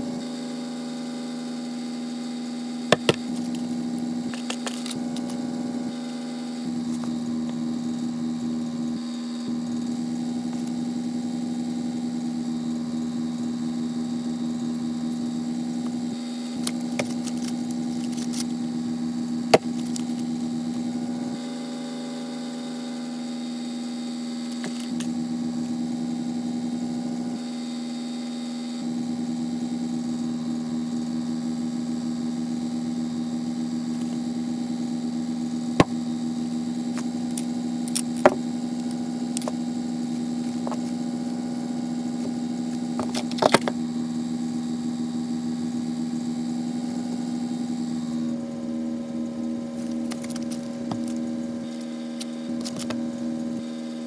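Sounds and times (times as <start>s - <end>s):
electrical hum: 0.0s - 54.0s.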